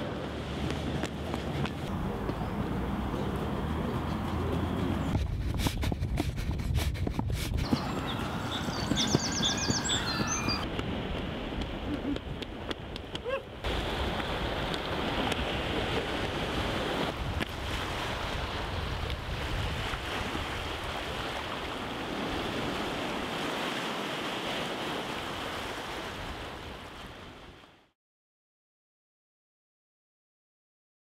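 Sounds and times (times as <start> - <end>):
wind on microphone: 0.6 - 23.5
surf on rocky shore: 7.6 - 27.8.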